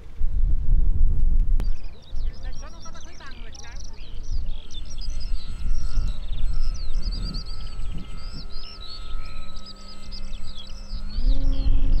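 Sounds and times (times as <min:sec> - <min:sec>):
wind rumble on microphone: 0:00.0 - 0:12.0
birds chirping and trilling: 0:01.6 - 0:12.0
model plane motor humming: 0:03.4 - 0:12.0.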